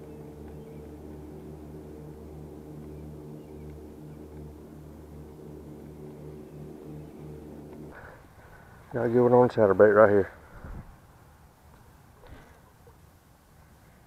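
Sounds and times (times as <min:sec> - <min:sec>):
motor humming: 0:00.0 - 0:08.9.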